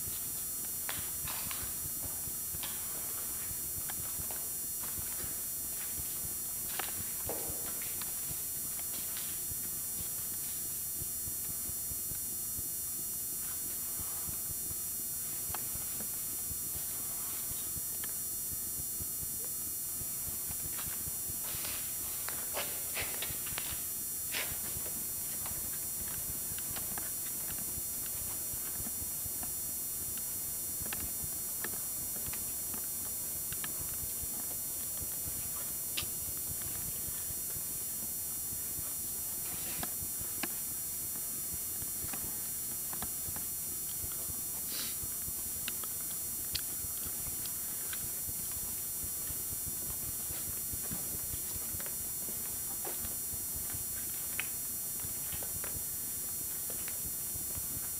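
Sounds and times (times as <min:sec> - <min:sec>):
steady hiss: 0:00.0 - 0:57.9
footsteps: 0:00.1 - 0:09.4, 0:20.5 - 0:29.6.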